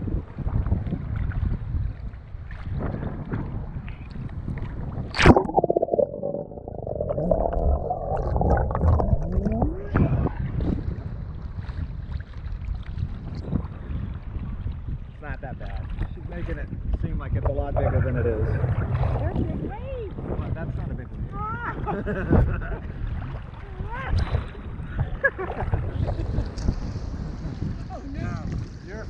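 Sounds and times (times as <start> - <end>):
wind buffeting microphone: 0.0 - 29.0
underwater bubbling and gurgling: 0.2 - 15.0, 15.6 - 20.5, 22.4 - 27.8
sea water sloshing: 4.7 - 13.2
loud splash: 5.1 - 10.0.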